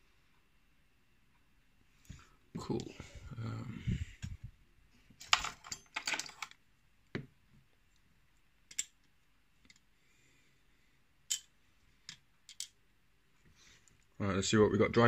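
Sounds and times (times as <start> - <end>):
small metal parts clicking: 5.2 - 6.6, 8.7 - 9.8, 11.3 - 11.5, 12.1 - 12.8.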